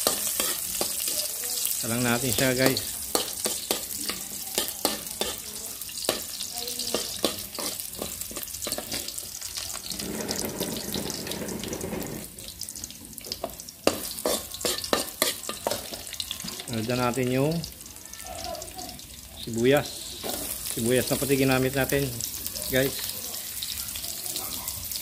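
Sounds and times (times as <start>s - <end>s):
metal spoon scraping wok: 0.0s - 1.4s, 2.1s - 12.4s, 13.8s - 16.2s, 19.9s - 21.4s
garlic sizzling in hot oil: 0.0s - 25.0s.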